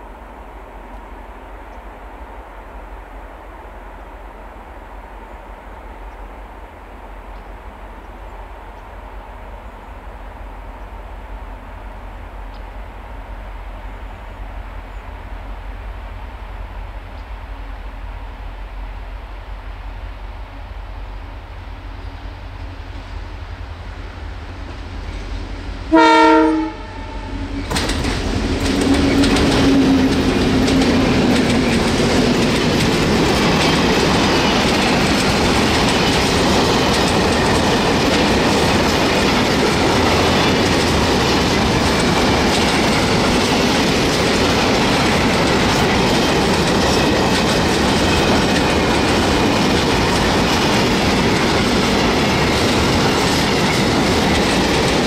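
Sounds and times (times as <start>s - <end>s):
locomotive engines passing: 21.6s - 55.0s
freight train wheels clattering: 22.0s - 55.0s
locomotive horn blast: 25.9s - 27.5s.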